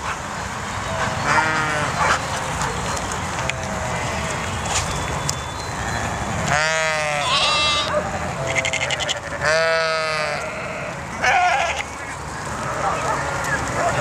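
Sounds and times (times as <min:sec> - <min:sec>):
flock of sheep bleating: 0:01.2 - 0:02.0, 0:03.4 - 0:04.6, 0:06.5 - 0:07.9, 0:08.5 - 0:11.9
sheep bleating loudly nearby: 0:06.5 - 0:07.9, 0:08.5 - 0:11.9.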